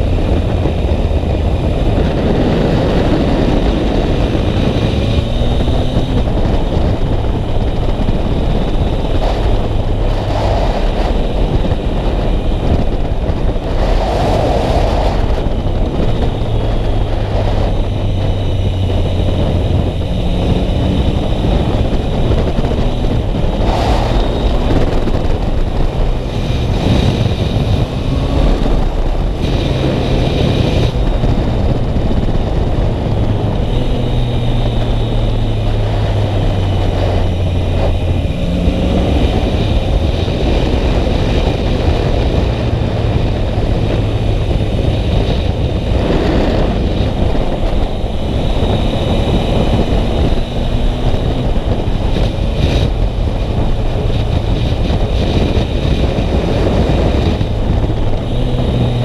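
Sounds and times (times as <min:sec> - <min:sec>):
motorcycle engine revving: 0:00.0 - 0:59.0
wind noise on microphone: 0:00.0 - 0:59.0.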